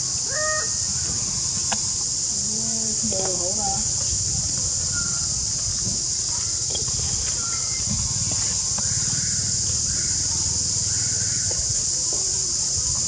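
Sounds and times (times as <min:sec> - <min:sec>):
insects droning in trees: 0:00.0 - 0:13.0
faint animal calls: 0:00.1 - 0:01.4.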